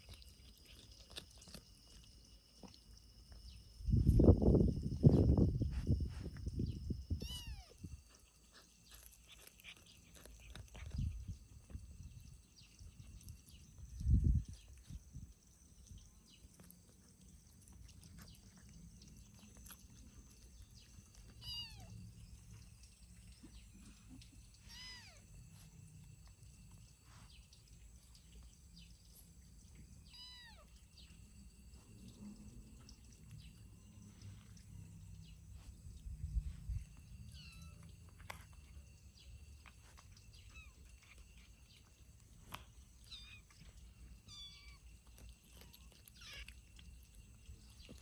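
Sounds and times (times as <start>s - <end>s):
kittens mewing: 7.1s - 7.9s, 21.3s - 22.0s, 24.6s - 25.4s, 30.1s - 30.7s, 44.2s - 46.9s.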